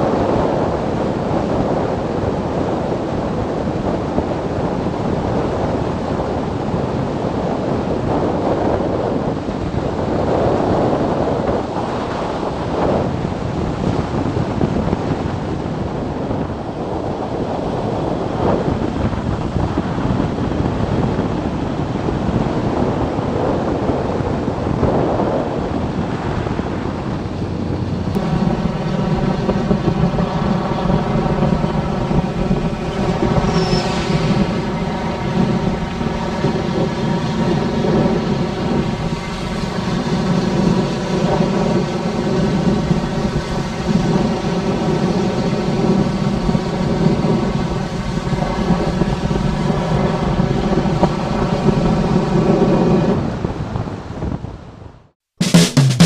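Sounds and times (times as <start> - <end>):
wind buffeting microphone: 0.0 - 55.1
motorcycle engine: 27.2 - 52.4.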